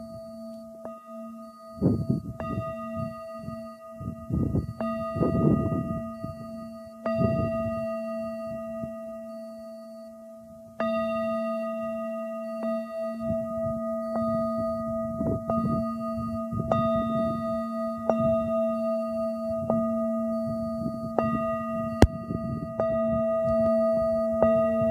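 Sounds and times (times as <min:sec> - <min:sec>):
wind rumble on microphone: 0:01.7 - 0:09.1, 0:13.2 - 0:24.9.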